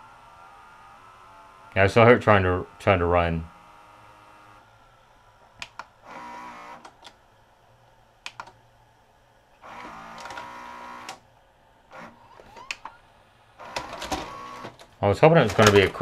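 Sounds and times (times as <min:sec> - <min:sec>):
loading motor whirring: 0:00.0 - 0:07.2, 0:09.6 - 0:11.3, 0:11.9 - 0:16.0
plastic gear clicks and clunks: 0:13.7 - 0:16.0.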